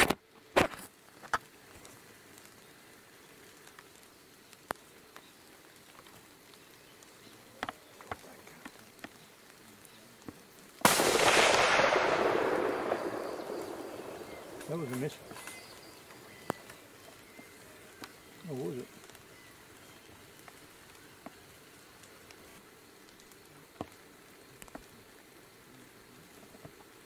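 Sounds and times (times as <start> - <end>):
faint ticks: 0.1 - 10.8, 12.8 - 27.0
rifle shot with rolling echo: 10.8 - 17.4.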